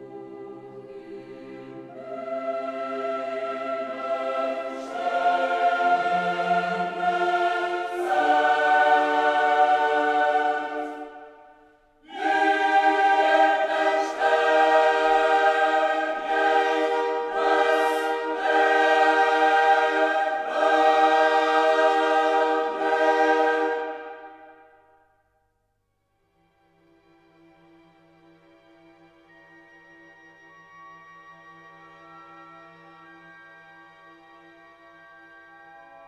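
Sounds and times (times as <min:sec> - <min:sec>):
choir singing held chords: 0:00.0 - 0:25.0.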